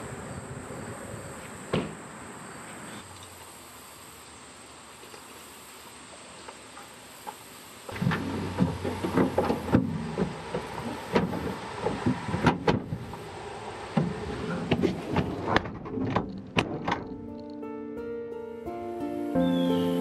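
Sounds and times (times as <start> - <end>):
plastic boxes knocking in truck bed: 1.7 - 2.0, 7.9 - 13.3, 13.9 - 17.2
tailgate shutting: 7.9 - 17.5
music: 16.8 - 20.0.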